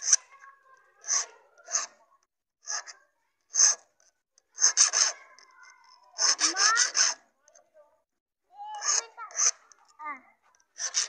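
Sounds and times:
file rasping on metal: 0.0s - 0.3s, 1.0s - 2.0s, 2.6s - 7.3s, 8.8s - 9.8s, 10.7s - 11.0s.

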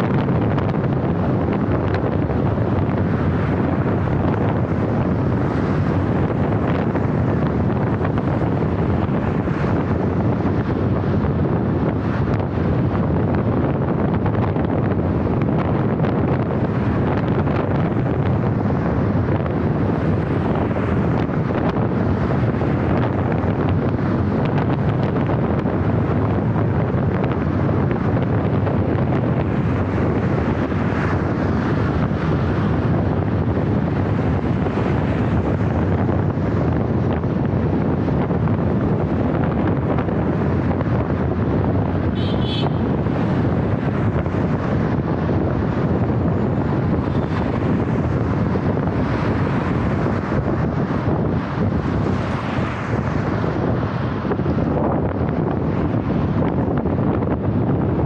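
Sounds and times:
road and traffic noise: 0.0s - 58.0s
wind buffeting microphone: 0.0s - 58.0s.

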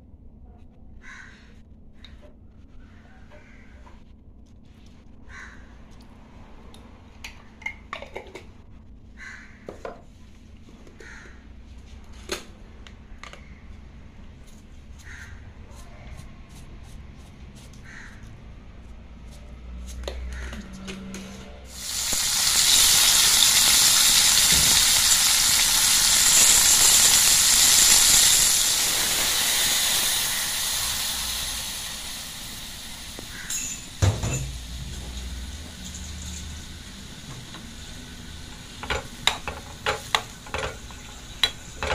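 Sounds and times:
food sizzling in a wok: 21.7s - 41.9s.

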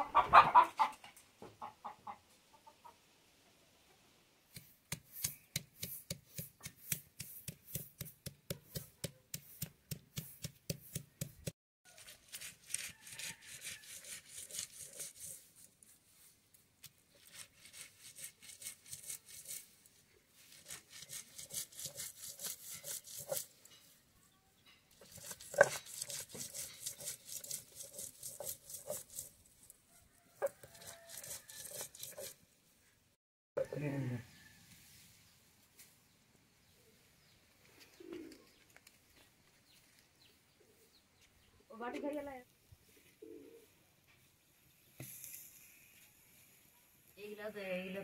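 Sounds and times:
stone roller grinding on stone slab: 20.7s - 23.5s, 24.9s - 29.4s, 30.4s - 32.4s.

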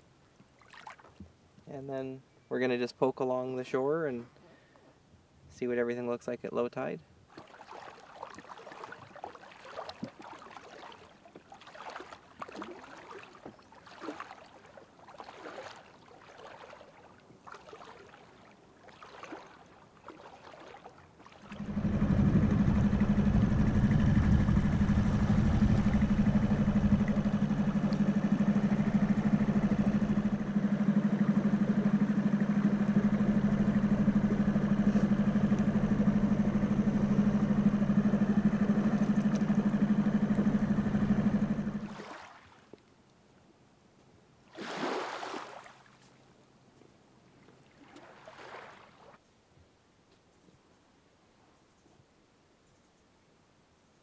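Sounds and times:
splashing steps in shallow water: 0.6s - 1.2s, 7.3s - 21.8s, 41.8s - 42.8s, 44.5s - 46.2s, 47.5s - 49.2s
outboard motor running: 7.3s - 42.2s.

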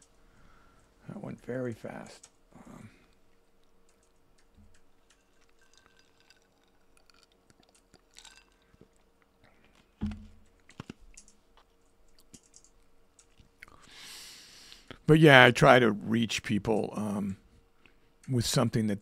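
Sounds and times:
sharp clicks: 3.6s - 5.2s
person sipping from cup: 5.4s - 9.8s
thump: 10.0s - 10.4s.

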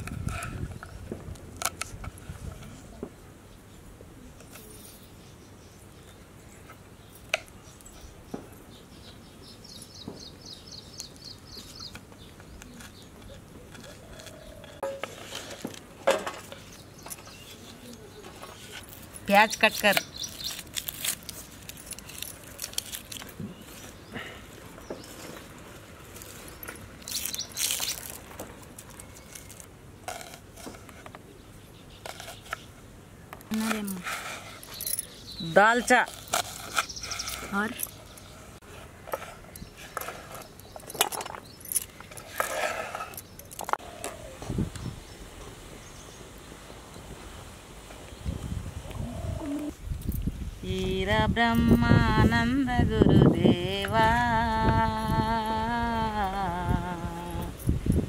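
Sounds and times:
bird chirping: 4.6s - 15.0s, 16.5s - 20.7s, 26.4s - 28.2s, 33.5s - 38.6s.

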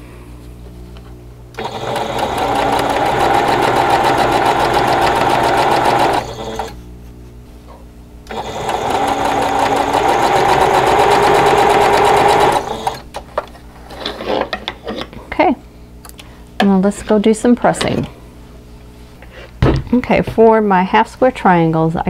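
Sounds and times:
sewing machine stitching: 1.6s - 6.8s, 8.3s - 13.1s.

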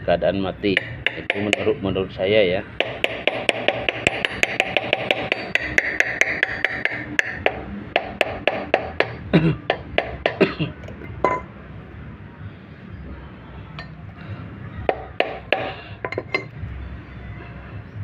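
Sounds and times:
hammer tapping on metal: 0.7s - 1.8s, 2.8s - 10.6s, 11.2s - 11.5s, 14.9s - 16.5s.

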